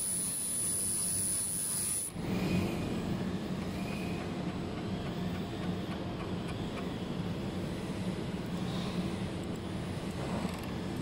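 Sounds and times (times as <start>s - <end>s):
laser welder hiss and whine: 0.0s - 4.2s.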